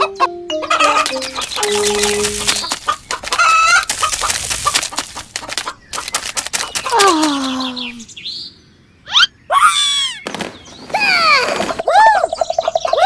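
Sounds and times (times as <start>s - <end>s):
chicken clucking: 0.0s - 6.2s
sharp pecking clicks: 0.6s - 7.5s.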